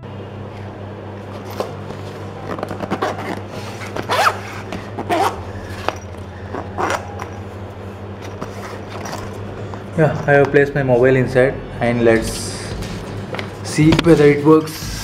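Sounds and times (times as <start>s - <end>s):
low hum: 0.0s - 15.0s
zipper being pulled shut: 2.5s - 5.4s, 6.5s - 7.4s.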